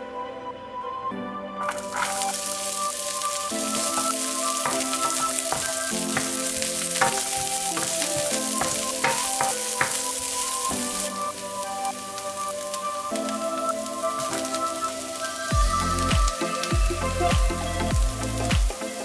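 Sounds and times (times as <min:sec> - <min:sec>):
soft background music: 0:00.0 - 0:19.0
wooden spoon scraping skillet: 0:01.6 - 0:12.6
onion sizzling in oil: 0:01.6 - 0:19.0.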